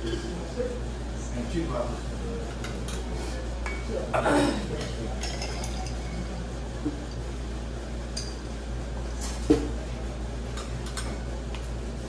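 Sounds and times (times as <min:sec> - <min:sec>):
steady low hum: 0:00.0 - 0:12.0
glassware and cutlery clinking: 0:04.8 - 0:06.2.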